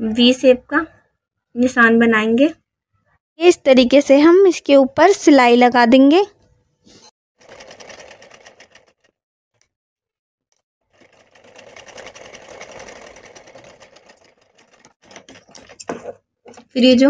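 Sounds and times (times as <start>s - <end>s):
sewing machine stitching: 7.4s - 9.2s, 10.8s - 16.2s.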